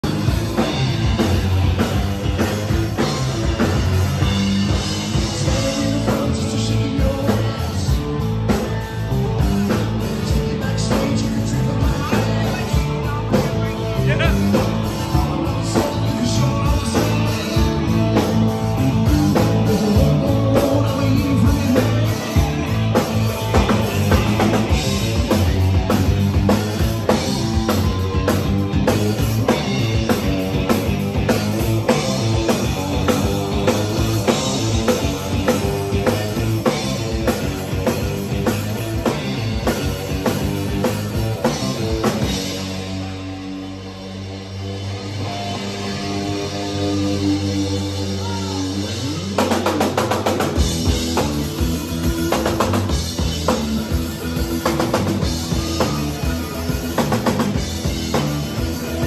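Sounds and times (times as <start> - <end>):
bass guitar: 0.0 - 59.0
drum kit beat: 0.0 - 59.0
electric guitar: 0.0 - 59.0
person singing: 5.1 - 26.0, 31.2 - 39.0, 46.1 - 59.0.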